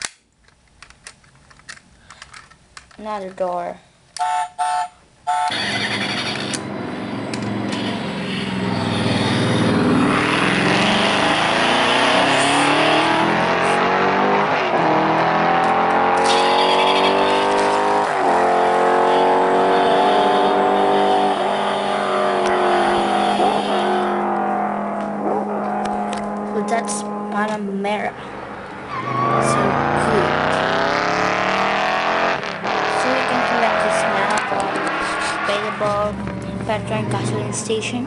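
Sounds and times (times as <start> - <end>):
toy race car engine revving: 5.4 - 6.7, 7.3 - 24.3, 29.3 - 35.9.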